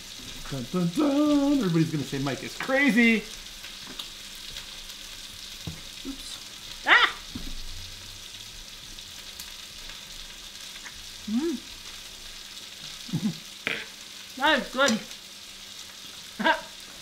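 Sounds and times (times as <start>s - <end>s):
steady hiss: 0.0s - 17.0s
person humming mmm: 11.2s - 11.7s, 13.0s - 13.9s.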